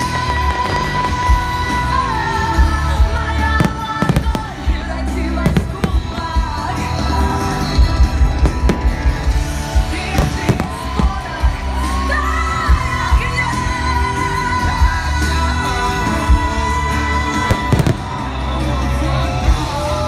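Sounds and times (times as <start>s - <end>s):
loud music with singing: 0.0s - 20.0s
fireworks bursting: 3.2s - 12.1s, 17.3s - 18.6s.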